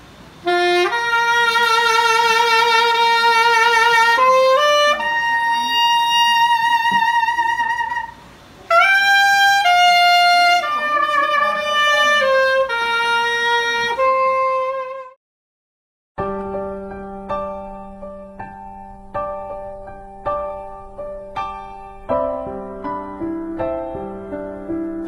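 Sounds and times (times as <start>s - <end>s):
saxophone slow melody: 0.3s - 15.2s.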